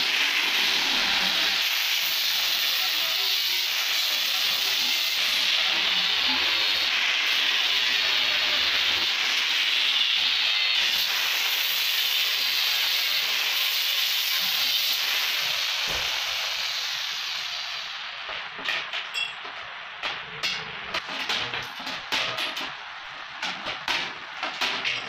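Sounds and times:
angle grinder grinding steel: 0:00.1 - 0:18.2.

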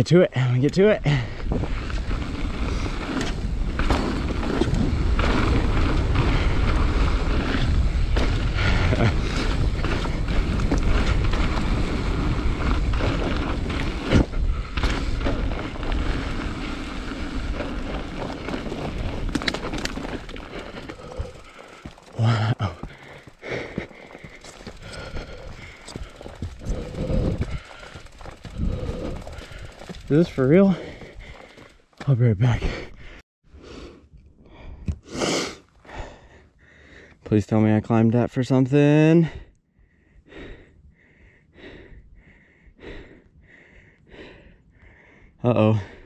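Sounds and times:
wind buffeting microphone: 0:01.2 - 0:22.2, 0:22.8 - 0:31.7
tyres rolling on dirt: 0:01.4 - 0:32.2
bike frame and chain rattling: 0:01.6 - 0:32.0.

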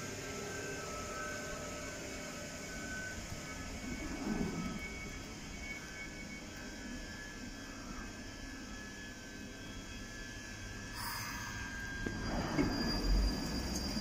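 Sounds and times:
train low hum: 0:00.0 - 0:10.8, 0:11.4 - 0:14.0
train low rumbling: 0:00.8 - 0:07.1, 0:12.0 - 0:14.0.

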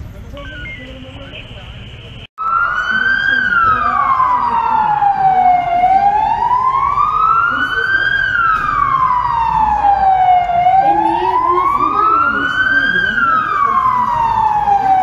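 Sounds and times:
police siren wailing: 0:02.4 - 0:15.0.

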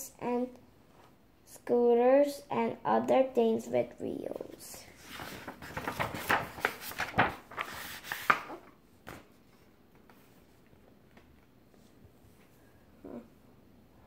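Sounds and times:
paper page rustling: 0:04.4 - 0:10.6.

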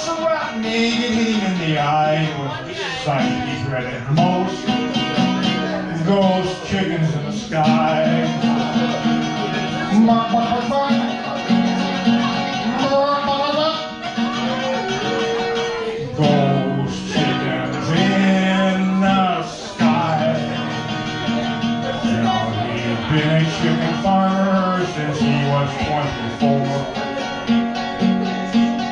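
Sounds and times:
acoustic guitar: 0:00.0 - 0:28.9
man singing: 0:00.0 - 0:28.9.

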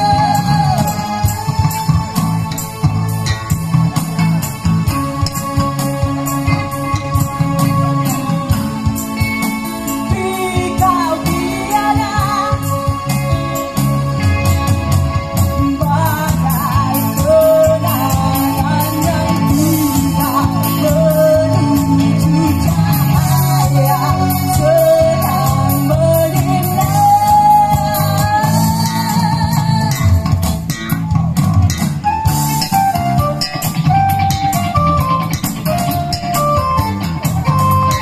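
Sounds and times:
woman singing: 0:00.0 - 0:01.8, 0:09.9 - 0:13.6, 0:15.6 - 0:30.3
bass guitar: 0:00.0 - 0:38.0
electric guitar: 0:00.0 - 0:38.0
keyboard: 0:00.0 - 0:38.0.

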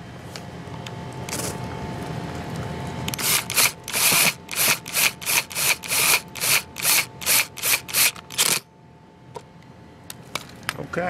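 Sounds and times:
cordless drill driving screws: 0:03.1 - 0:08.6.

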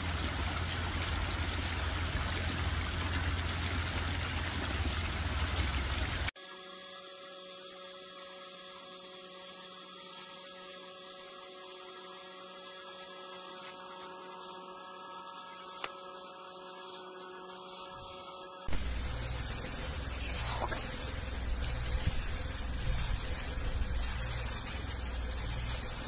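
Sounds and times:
faint steady hum: 0:00.0 - 0:26.0
light hiss: 0:18.7 - 0:26.0.

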